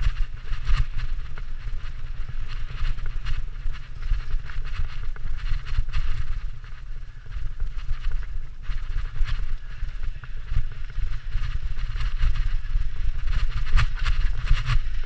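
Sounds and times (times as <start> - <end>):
wind buffeting microphone: 0.0 - 15.0
bike knocks and rattles: 7.5 - 15.0.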